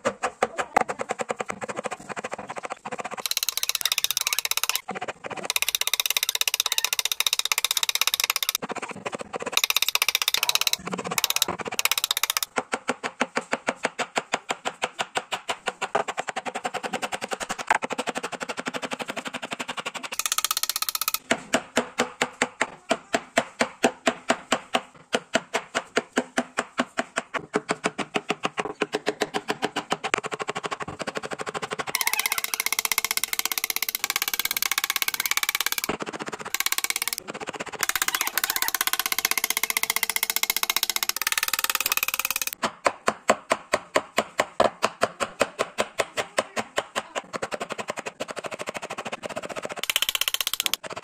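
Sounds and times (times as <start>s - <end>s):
chisel scraping cuts: 0.0s - 12.5s, 31.9s - 42.6s.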